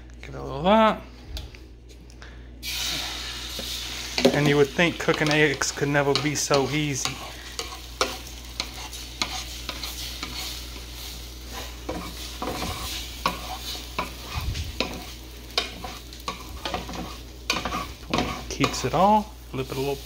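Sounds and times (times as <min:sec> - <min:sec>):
eggs sizzling: 0:02.6 - 0:20.0
wooden spatula scraping pan: 0:03.6 - 0:18.9.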